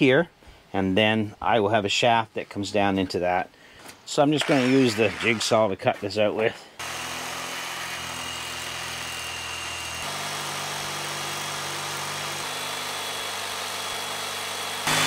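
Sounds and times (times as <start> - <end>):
jigsaw cutting plastic sheet: 4.4 - 5.6, 6.8 - 15.0.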